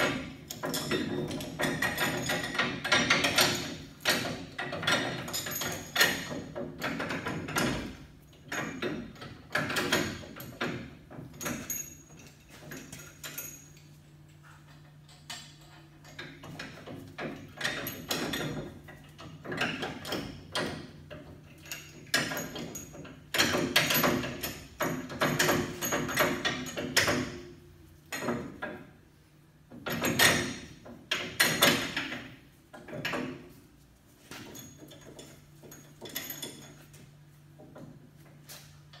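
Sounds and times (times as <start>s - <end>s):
metallic clanking and scraping of tools: 0.0s - 29.0s, 29.6s - 39.0s.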